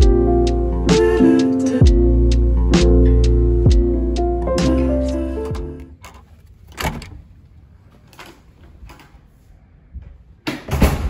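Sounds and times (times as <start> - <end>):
door lock clicks: 5.4 - 7.2.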